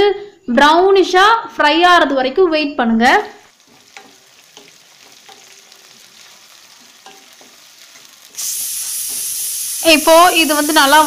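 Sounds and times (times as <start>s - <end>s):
onions sizzling in hot oil: 3.3s - 11.0s.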